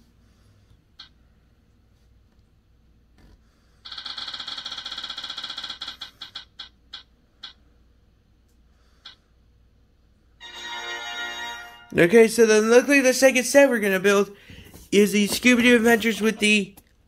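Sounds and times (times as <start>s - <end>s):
phone app wheel ticking: 1.0s - 1.4s, 3.8s - 7.8s.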